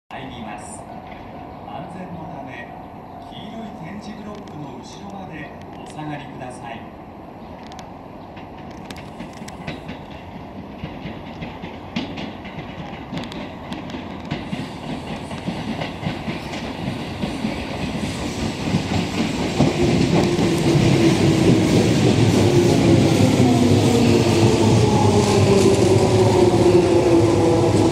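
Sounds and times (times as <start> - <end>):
train rumble: 0.2 - 27.9
train wheels clicking over joints: 7.6 - 27.9.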